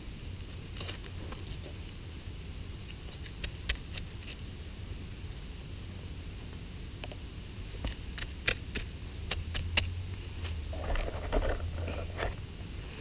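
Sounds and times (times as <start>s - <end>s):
digging stick scraping stony soil: 2.8s - 4.5s, 7.6s - 13.0s
crumbling scratching earth: 7.6s - 13.0s.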